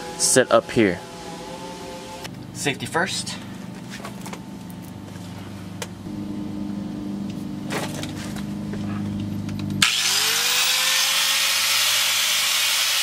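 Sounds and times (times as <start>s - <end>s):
angle grinder cutting metal: 9.8s - 13.0s.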